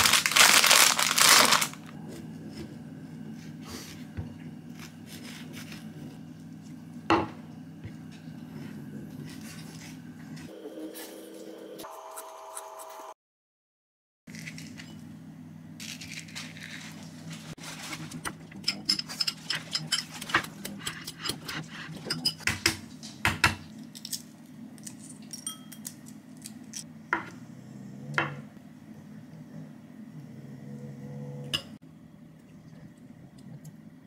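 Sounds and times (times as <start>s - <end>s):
steady low hum: 0.0s - 11.9s.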